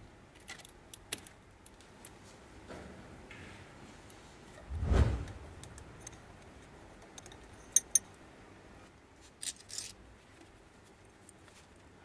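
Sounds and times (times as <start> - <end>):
metal spanner clinking: 7.1 - 8.1.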